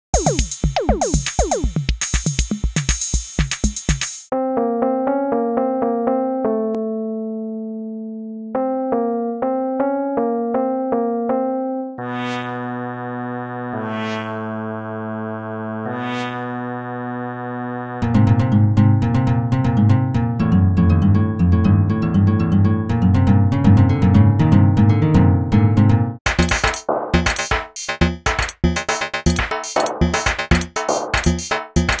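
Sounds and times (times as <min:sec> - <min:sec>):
drum machine beat: 0:00.1 - 0:04.3, 0:26.3 - 0:32.0
electronic keyboard chord: 0:04.3 - 0:12.5, 0:19.0 - 0:26.2.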